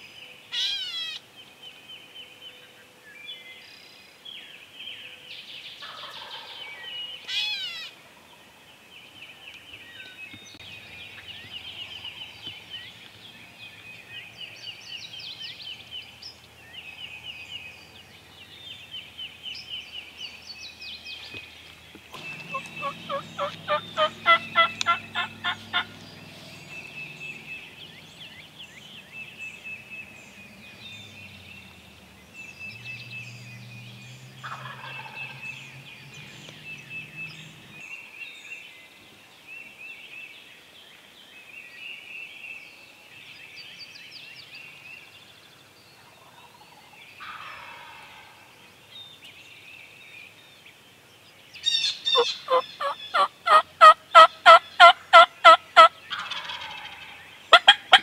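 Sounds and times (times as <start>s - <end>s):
high bird calls: 0.5s - 1.2s, 5.8s - 8.0s, 21.2s - 31.8s, 51.6s - 58.0s
turkey gobbling: 5.8s - 6.5s, 22.2s - 26.0s, 34.4s - 35.4s, 47.2s - 48.3s, 52.0s - 58.0s.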